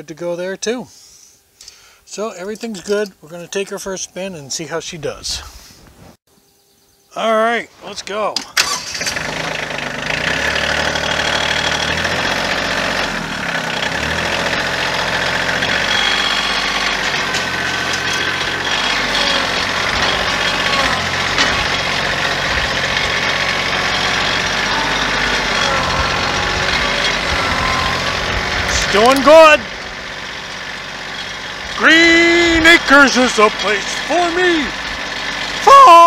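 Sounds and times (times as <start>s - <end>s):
tractor diesel engine running: 8.6s - 36.0s.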